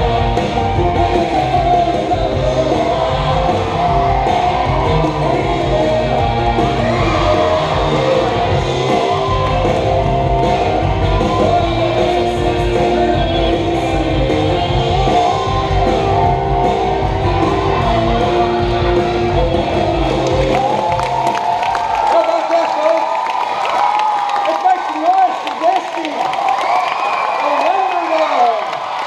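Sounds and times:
guitar music: 0:00.0 - 0:21.2.

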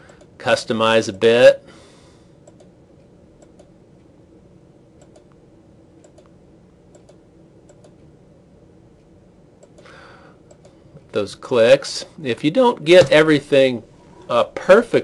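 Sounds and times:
computer mouse clicks: 0:02.4 - 0:02.8, 0:03.4 - 0:03.8, 0:05.0 - 0:05.4, 0:06.0 - 0:08.1, 0:09.6 - 0:09.9, 0:10.5 - 0:10.8.

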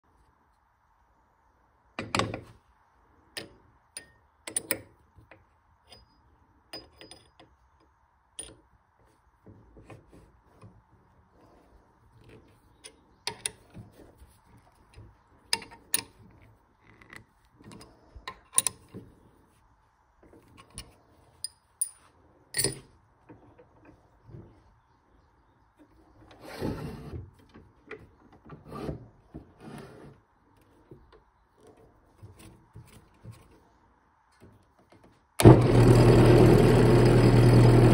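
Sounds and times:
lathe chuck metal clicks and knocks: 0:03.4 - 0:06.1.

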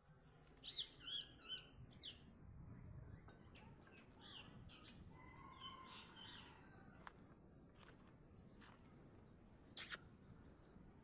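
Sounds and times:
bird chirps and calls: 0:00.6 - 0:02.3.

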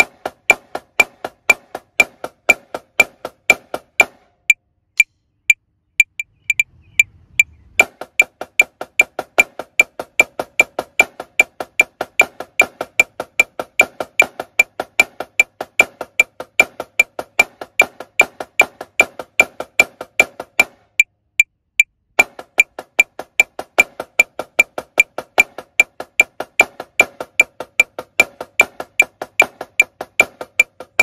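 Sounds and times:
snare drum stick strokes: 0:00.0 - 0:04.3, 0:07.8 - 0:21.1, 0:22.2 - 0:31.0
metronome clicking: 0:06.0 - 0:17.5, 0:27.3 - 0:31.0.

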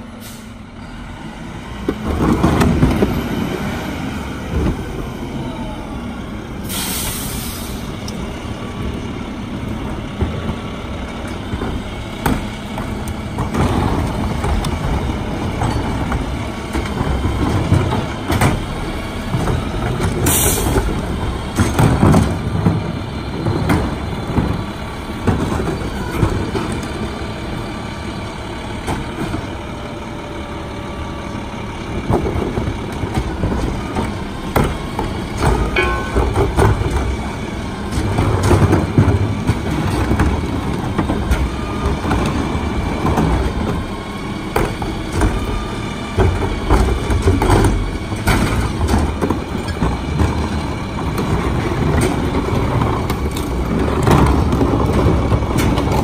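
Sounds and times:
garbage truck engine: 0:00.0 - 0:56.0
air brakes hissing: 0:00.2 - 0:00.6, 0:06.6 - 0:08.0, 0:20.2 - 0:20.8
carts knocking and clattering: 0:01.8 - 0:03.9, 0:09.6 - 0:27.5, 0:31.9 - 0:56.0.

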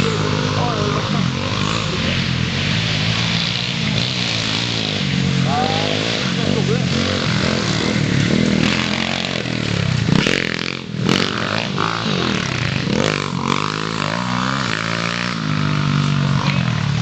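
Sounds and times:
motorbike engines revving: 0:00.0 - 0:17.0.

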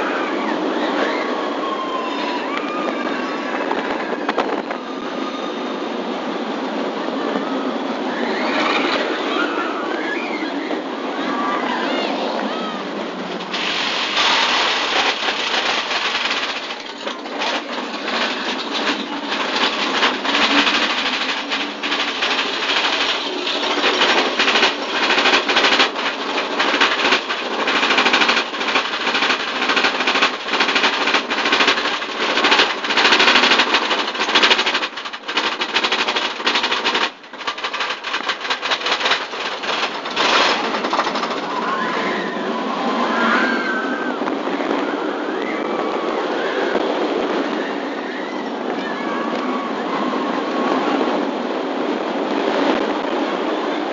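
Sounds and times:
roller coaster lift chain clatter: 0:00.0 - 0:53.9.

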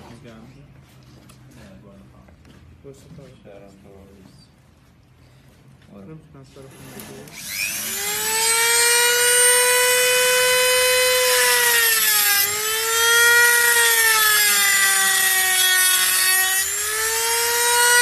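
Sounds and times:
rotary tool cutting metal whine: 0:06.7 - 0:18.0.

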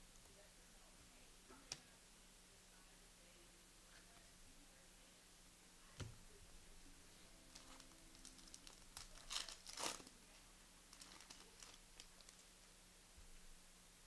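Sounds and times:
wrapper crinkling and tearing: 0:07.5 - 0:10.1, 0:10.9 - 0:12.6
small clicks and rustles: 0:07.5 - 0:12.7.

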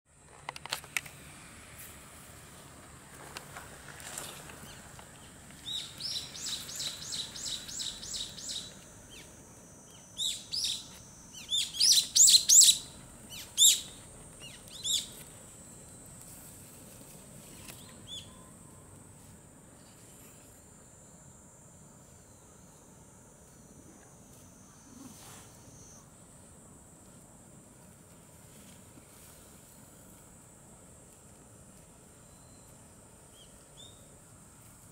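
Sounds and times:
small bird chirping: 0:04.2 - 0:15.3, 0:32.2 - 0:34.1.

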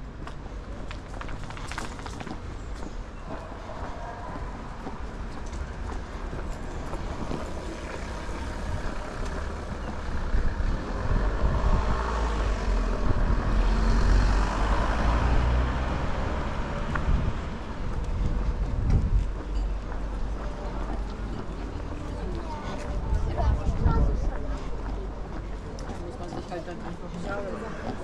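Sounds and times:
street traffic: 0:00.0 - 0:28.0
vehicle passing close by: 0:10.1 - 0:18.4.

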